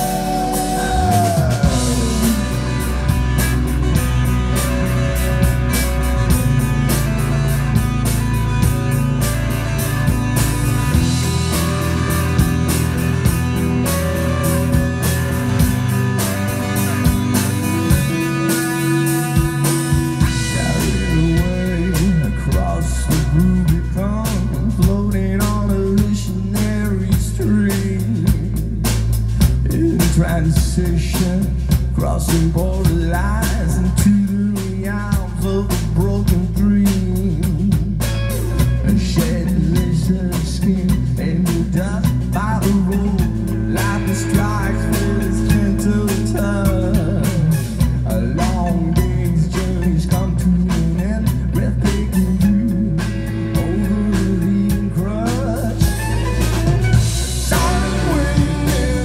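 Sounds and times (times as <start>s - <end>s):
man singing: 0.0s - 5.0s, 16.6s - 56.6s, 57.2s - 59.0s
live rock band playing: 0.0s - 59.0s.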